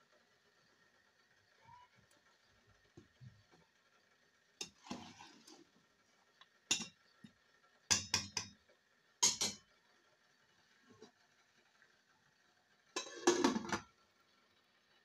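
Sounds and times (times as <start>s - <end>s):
metal ladle clinking against pot: 6.7s - 7.0s, 9.2s - 9.6s.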